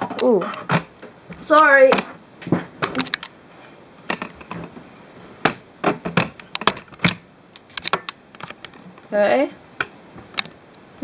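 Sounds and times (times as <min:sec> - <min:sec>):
handling clicks and knocks: 0:04.0 - 0:04.8, 0:05.4 - 0:09.1.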